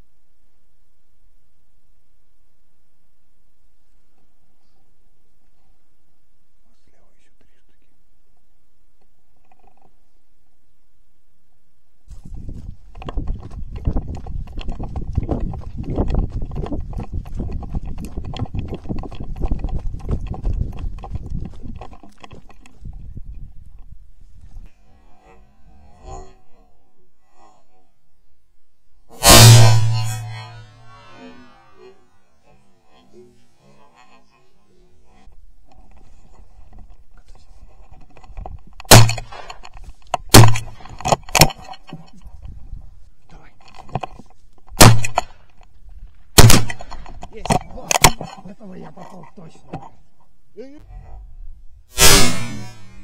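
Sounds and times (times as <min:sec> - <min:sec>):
footsteps on dry field: 0:12.1 - 0:24.7
quieter bang: 0:29.1 - 0:31.7, 0:38.9 - 0:39.7, 0:40.3 - 0:41.1, 0:46.4 - 0:48.4, 0:51.9 - 0:53.0
shotgun shots: 0:29.2 - 0:30.7, 0:38.9 - 0:39.6, 0:40.3 - 0:40.8, 0:44.8 - 0:45.3, 0:46.4 - 0:47.0, 0:52.0 - 0:53.0.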